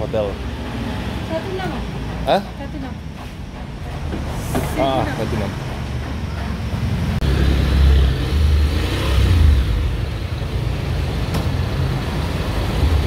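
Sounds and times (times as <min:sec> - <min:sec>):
scooter engine revving: 0:06.8 - 0:13.0.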